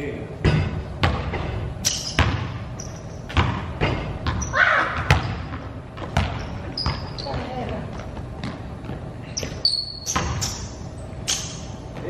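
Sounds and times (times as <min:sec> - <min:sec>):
basketball bouncing on hardwood floor: 0:00.4 - 0:01.6, 0:02.2 - 0:02.6, 0:03.3 - 0:10.4.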